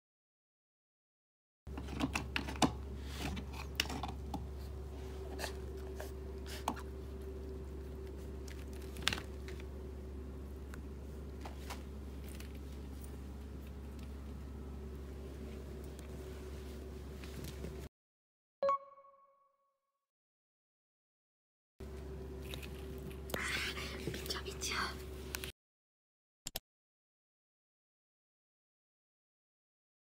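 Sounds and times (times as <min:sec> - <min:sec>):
steady low hum: 0:01.7 - 0:17.9, 0:21.8 - 0:25.5.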